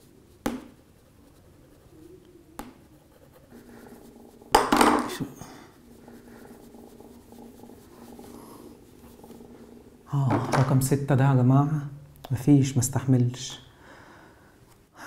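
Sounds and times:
cloth rubbing on glass: 0.0s - 5.2s, 5.8s - 10.1s.

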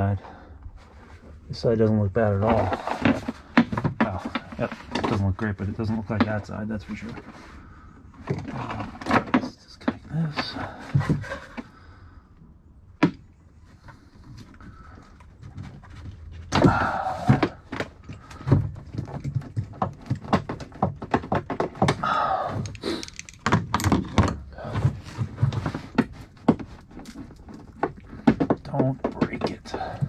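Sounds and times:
scraping or rustling: 0.7s - 11.9s, 13.6s - 30.0s
plastic and metal parts clicking: 14.5s - 24.9s.

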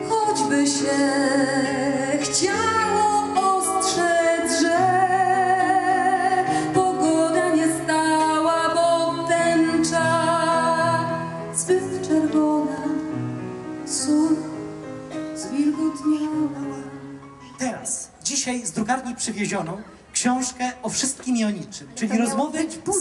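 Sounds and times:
woman singing with vibrato: 0.0s - 13.2s, 13.8s - 14.8s, 15.4s - 17.1s.

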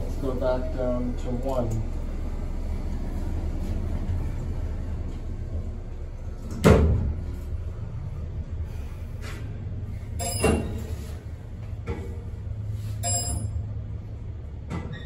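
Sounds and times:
low hum: 0.0s - 14.7s
elevator doors sliding shut: 10.1s - 11.3s.

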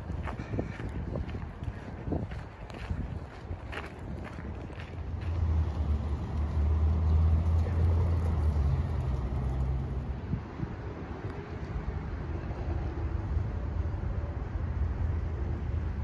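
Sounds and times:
passing vehicle engine drone: 4.9s - 16.0s.

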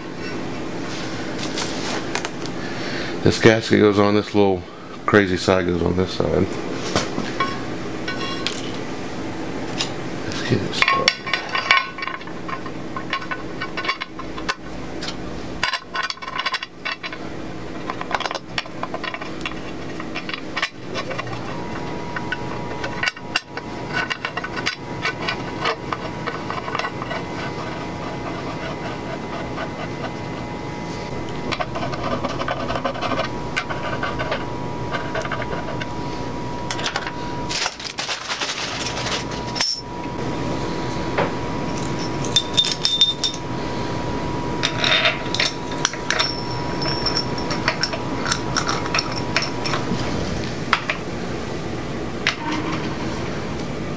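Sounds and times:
metal rubbing and scraping: 9.8s - 40.2s.

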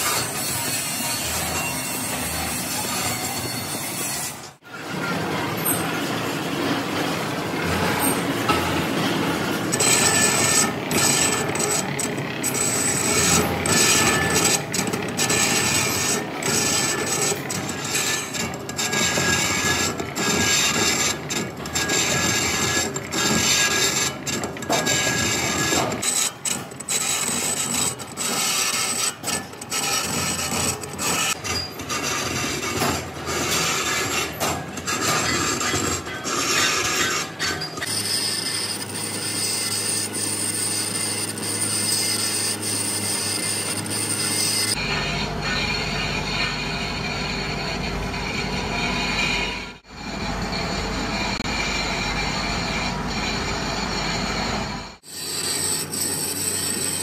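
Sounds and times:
lathe tool scraping metal: 0.0s - 57.0s.

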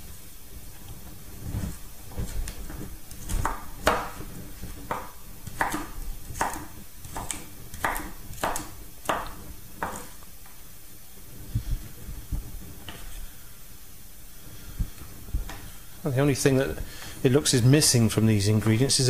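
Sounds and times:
knife chopping on wooden board: 2.2s - 10.2s.

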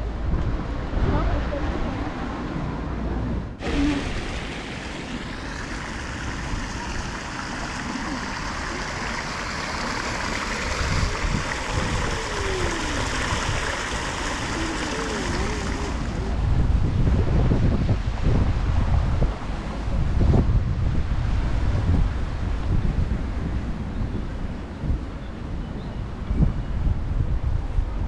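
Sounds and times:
fountain jet splashing into basin: 3.6s - 16.4s.

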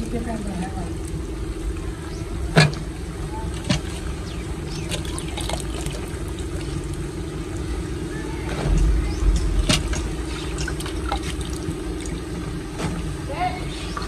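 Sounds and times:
steady low drone: 0.0s - 12.8s
heavy low thump: 8.4s - 11.9s.

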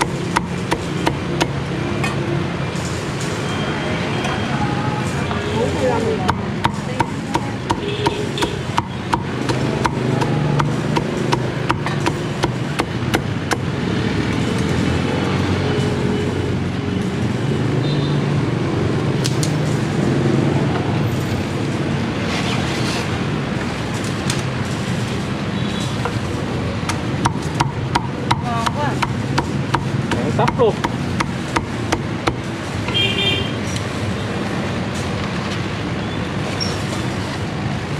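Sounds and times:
cleaver chopping on wooden block: 0.0s - 1.6s, 6.3s - 13.7s, 26.9s - 32.4s.

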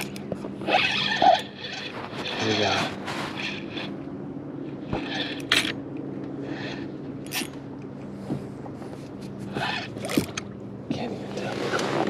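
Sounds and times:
gear scuffs and rustles: 0.0s - 4.0s, 7.3s - 10.3s
steady low hum: 0.0s - 12.0s.

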